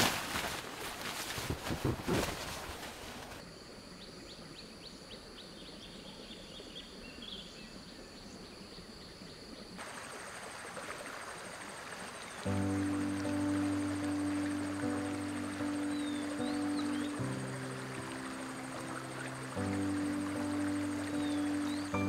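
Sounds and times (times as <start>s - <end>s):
rustling handling noise: 0.0s - 3.4s
high insect drone: 7.6s - 22.0s
fast pulsing insect trill: 11.5s - 22.0s.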